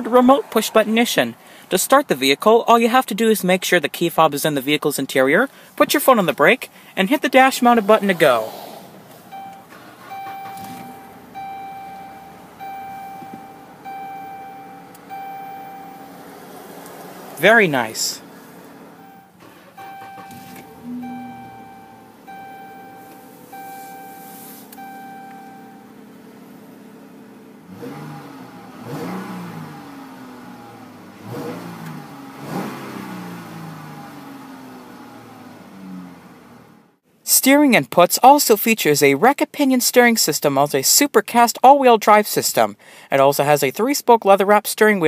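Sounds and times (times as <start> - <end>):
car warning chime: 9.3 - 16.4, 17.4 - 26.8.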